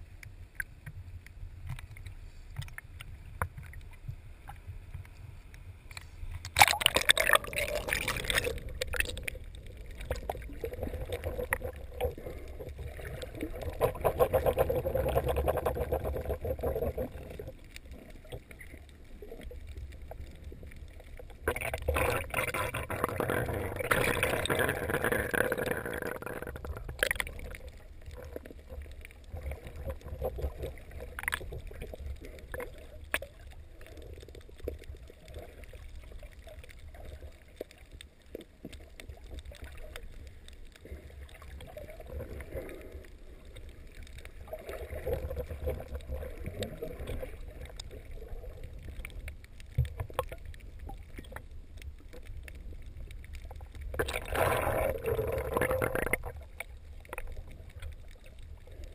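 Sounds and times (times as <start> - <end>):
water sloshing and splashing: 5.9 - 58.9
underwater gurgling and bubbling: 6.0 - 58.9.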